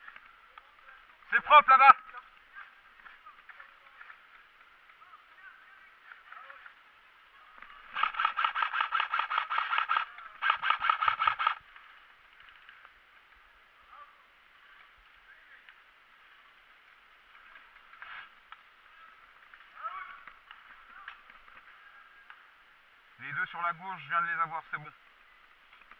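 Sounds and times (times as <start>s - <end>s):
airsoft rifle firing full-auto: 7.9s - 11.6s.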